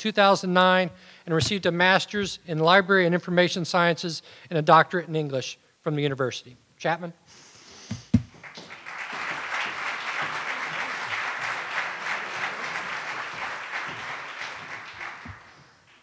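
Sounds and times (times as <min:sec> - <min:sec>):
audience applauding: 0:08.3 - 0:16.0.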